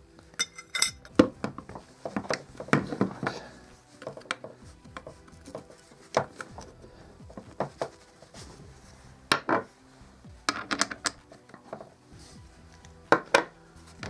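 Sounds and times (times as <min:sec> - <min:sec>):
metal clinks and taps: 0:00.4 - 0:01.2.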